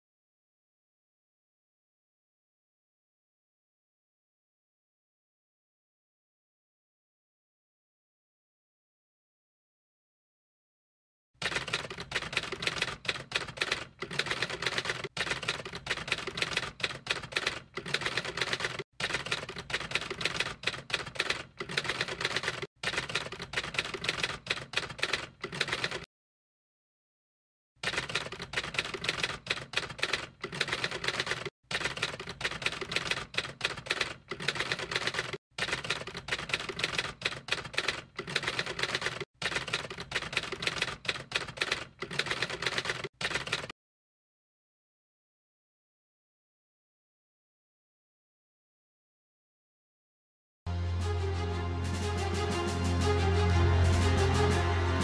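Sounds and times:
typewriter keys clacking: 11.4 - 26.1, 27.8 - 43.7.

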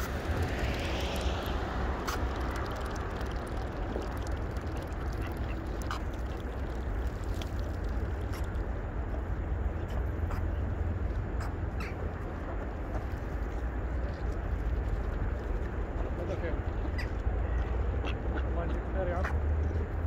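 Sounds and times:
low rumble: 0.0 - 18.3
ducks quacking: 4.7 - 6.6, 16.7 - 19.5.

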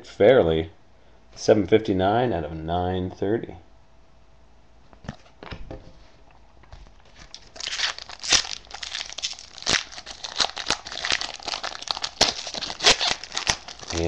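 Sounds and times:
plastic wrapping crinkling and tearing: 7.0 - 14.0.

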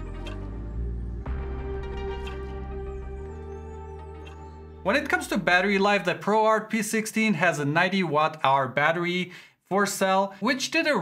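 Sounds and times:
slow instrumental music: 0.0 - 6.1.

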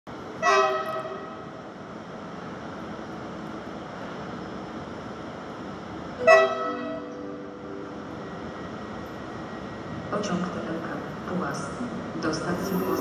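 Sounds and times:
station background hum: 0.1 - 13.0
train horn blasts: 0.4 - 1.6, 6.2 - 7.2.

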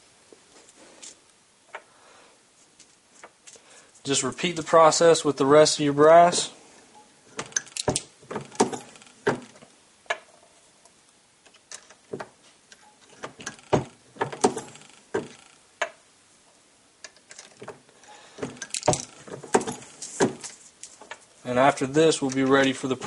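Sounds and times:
brass cases clicking on wooden bench: 7.3 - 10.3, 13.0 - 16.0, 17.0 - 21.2
reloading press clunking: 7.3 - 10.3, 13.1 - 15.4, 18.4 - 20.4.

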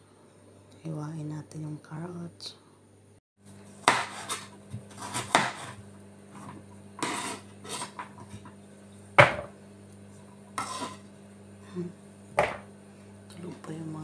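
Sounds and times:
knife chopping on cutting board: 3.8 - 5.8, 7.0 - 8.1, 9.2 - 9.5, 12.4 - 12.7.

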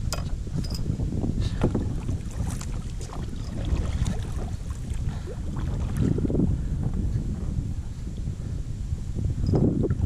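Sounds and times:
wind rumbling on microphone: 0.0 - 10.0
water lapping against kayak hull: 1.2 - 8.5
small splashes: 1.8 - 6.1.

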